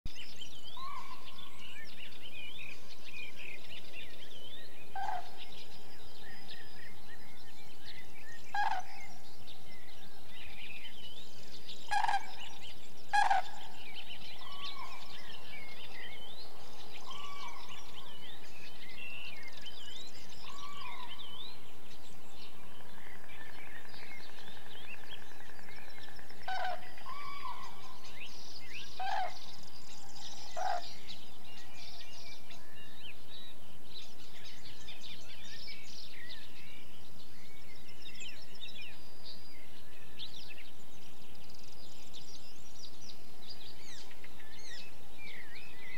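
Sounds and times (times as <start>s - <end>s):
small birds chirping: 0.1s - 45.9s
steady background hiss: 0.1s - 45.9s
cranes trumpeting calls: 5.0s - 5.5s, 8.5s - 9.1s, 11.9s - 15.1s, 20.4s - 21.2s, 26.4s - 28.0s, 28.9s - 29.6s, 30.4s - 31.0s.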